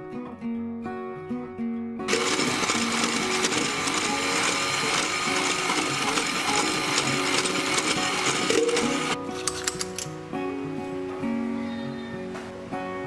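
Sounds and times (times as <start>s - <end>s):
electric hand mixer whirring: 2.1s - 9.2s.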